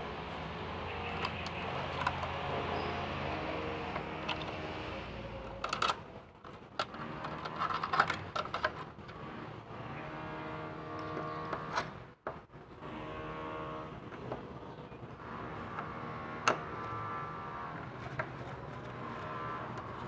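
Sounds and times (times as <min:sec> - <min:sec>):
clicks of plastic and metal parts: 0:01.1 - 0:02.8, 0:03.9 - 0:09.2, 0:15.7 - 0:16.9.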